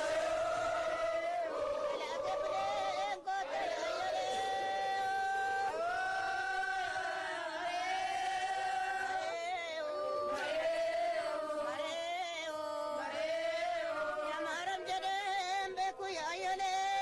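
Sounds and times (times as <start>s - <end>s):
voices chanting in held notes: 0.0s - 17.0s.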